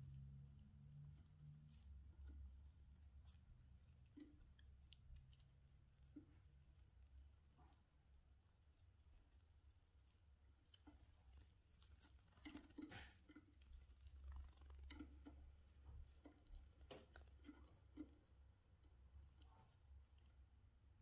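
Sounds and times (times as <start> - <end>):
low steady hum: 0.0 - 21.0
bird taps and scratches: 10.6 - 18.4.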